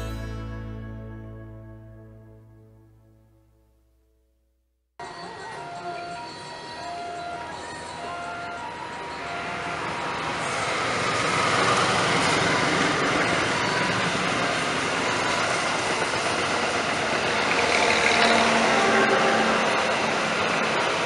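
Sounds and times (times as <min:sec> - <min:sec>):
train wheels clattering on rails: 0:11.1 - 0:21.0.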